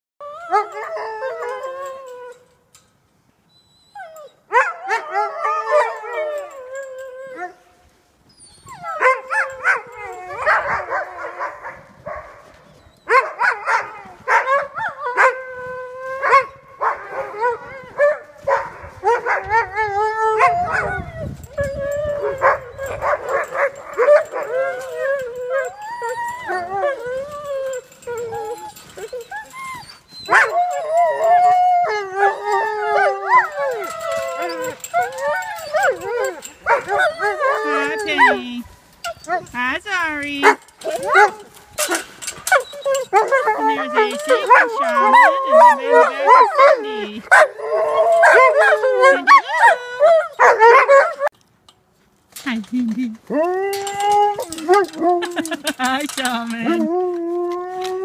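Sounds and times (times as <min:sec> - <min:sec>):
dogs yipping and barking: 0:00.2 - 0:02.3, 0:03.7 - 0:07.6, 0:08.4 - 0:39.5, 0:40.4 - 0:51.4, 0:53.3 - 0:57.0
dogs howling: 0:04.1 - 0:07.6, 0:08.7 - 0:11.7, 0:13.0 - 0:18.2, 0:19.0 - 0:38.6, 0:40.5 - 0:51.3, 0:53.3 - 0:55.6.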